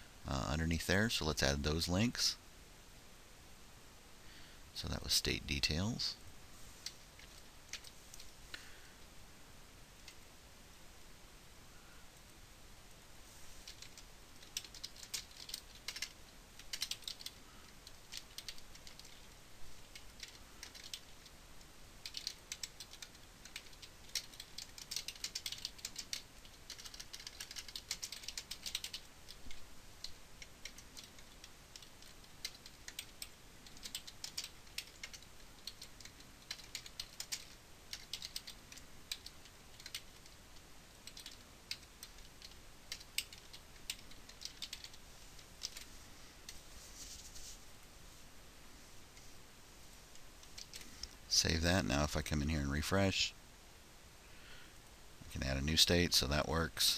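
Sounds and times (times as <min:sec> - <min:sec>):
keyboard typing: 0:06.8 - 0:08.3, 0:13.6 - 0:21.3, 0:22.0 - 0:46.6, 0:50.4 - 0:51.2.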